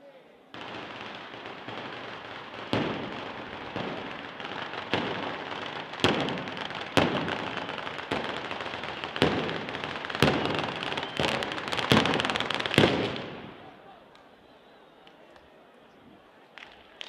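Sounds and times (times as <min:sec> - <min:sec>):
firecrackers crackling: 0:00.5 - 0:15.5, 0:16.2 - 0:17.0
loud firecracker bangs: 0:00.6 - 0:14.0.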